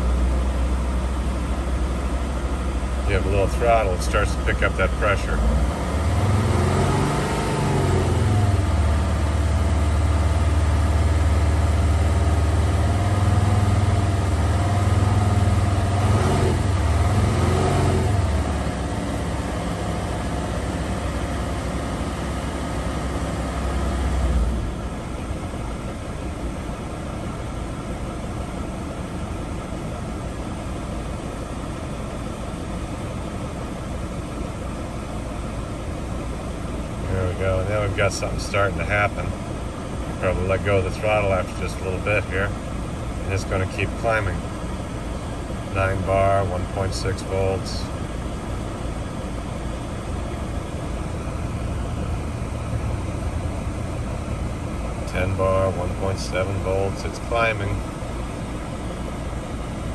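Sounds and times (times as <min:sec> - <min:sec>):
diesel engine revving above idle: 0:00.0 - 0:59.9.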